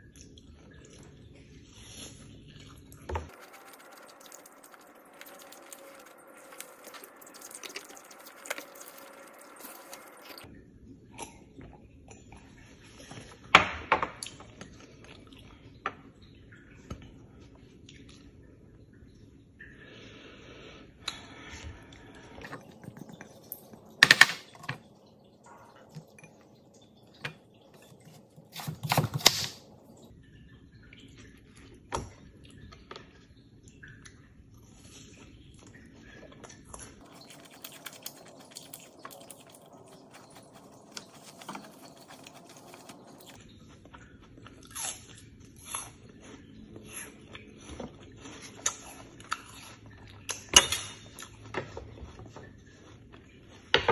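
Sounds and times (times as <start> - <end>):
chewing: 0.0 - 10.5, 33.8 - 53.7.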